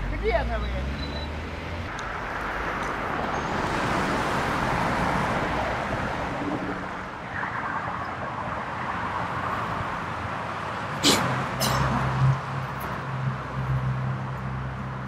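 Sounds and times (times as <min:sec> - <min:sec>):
road traffic noise: 0:00.0 - 0:15.0.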